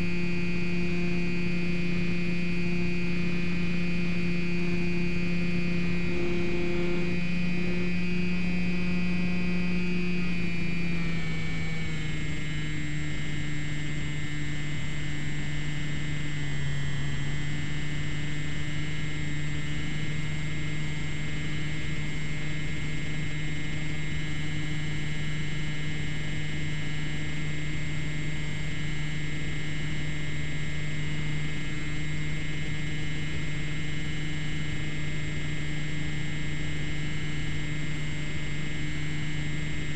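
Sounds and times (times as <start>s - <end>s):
model airplane motor humming: 0.0s - 39.9s.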